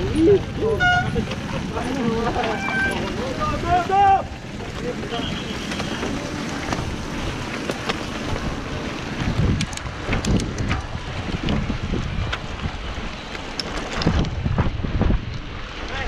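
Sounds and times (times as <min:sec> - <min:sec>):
wind buffeting microphone: 0:00.0 - 0:16.0
bike rattling clicks: 0:09.4 - 0:11.6, 0:12.2 - 0:14.5.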